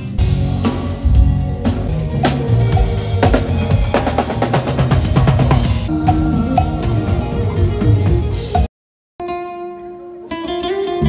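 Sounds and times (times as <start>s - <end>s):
band playing: 0.0s - 8.7s.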